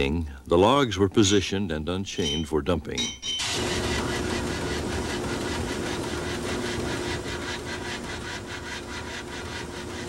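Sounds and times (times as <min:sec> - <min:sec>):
steam engine clattering: 0:02.2 - 0:10.0.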